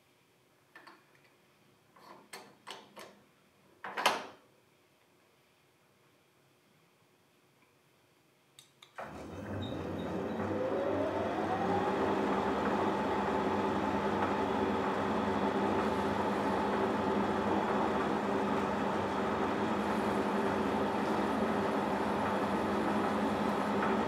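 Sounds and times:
metal lathe motor whining: 0:09.0 - 0:24.0.

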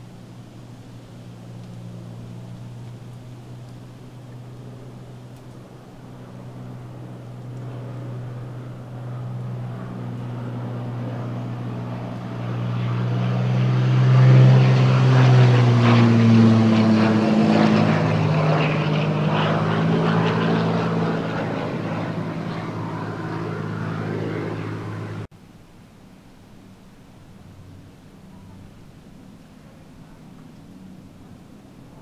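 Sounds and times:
propeller aircraft flying past: 0:00.0 - 0:32.0.

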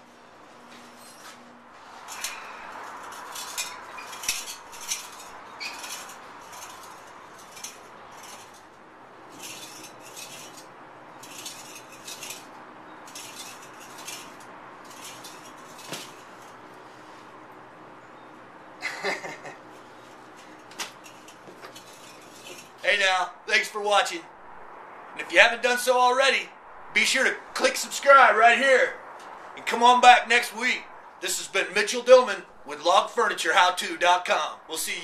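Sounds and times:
rocking chair scraping on gravel: 0:00.7 - 0:17.4, 0:19.8 - 0:23.3.

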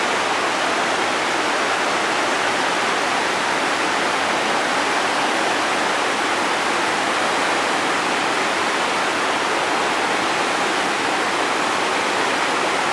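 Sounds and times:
river rapid rushing over rocks: 0:00.0 - 0:12.9.

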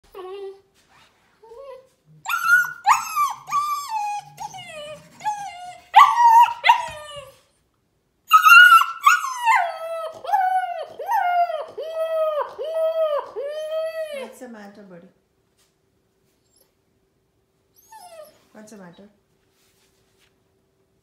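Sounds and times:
puppy howling and crying: 0:01.5 - 0:07.4, 0:08.3 - 0:14.4, 0:17.8 - 0:18.4.

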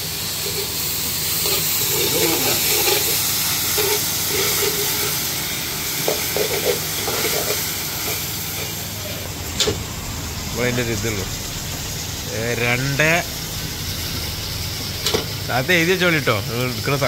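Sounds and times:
vegetables sizzling in hot oil: 0:00.0 - 0:17.0
metal ladle scraping wok: 0:00.4 - 0:05.4, 0:06.0 - 0:09.7.

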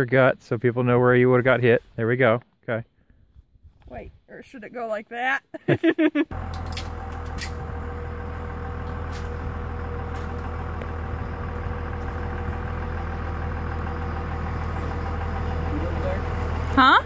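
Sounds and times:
engine idling drone: 0:06.3 - 0:17.0.

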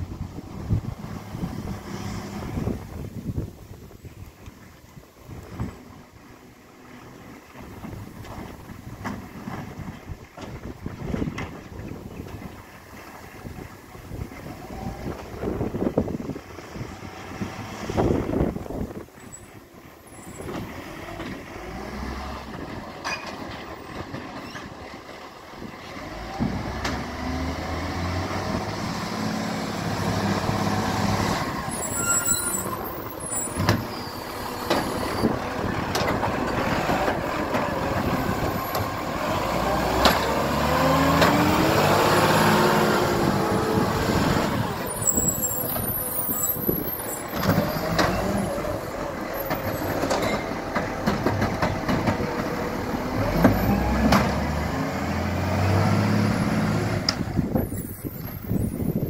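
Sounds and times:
garbage truck diesel engine: 0:00.0 - 0:59.0.

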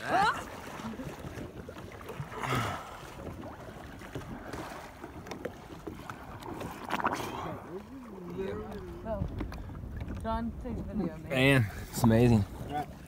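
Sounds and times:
water lapping and dripping: 0:00.0 - 0:13.0
wind on the microphone: 0:08.4 - 0:13.0.

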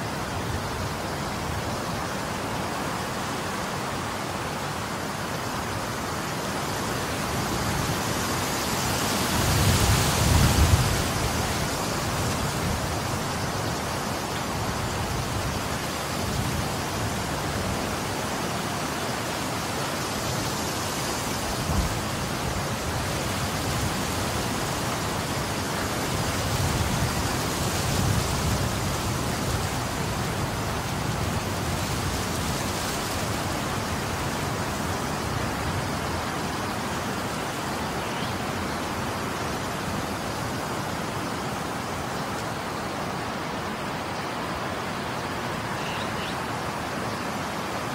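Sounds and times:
strong wind blowing: 0:05.7 - 0:18.8, 0:19.5 - 0:45.8
wind buffeting microphone: 0:07.2 - 0:13.8.

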